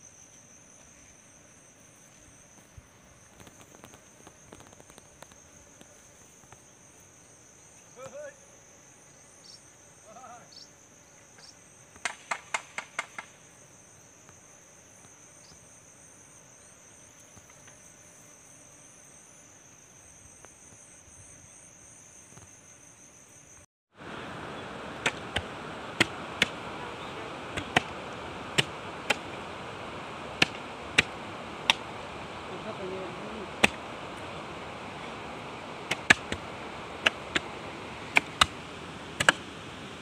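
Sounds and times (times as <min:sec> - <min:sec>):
insects trilling: 0:00.0 - 0:40.0
hoe blades striking soil: 0:25.0 - 0:26.6, 0:27.5 - 0:29.5, 0:30.3 - 0:31.9, 0:33.6 - 0:34.3, 0:35.8 - 0:39.6.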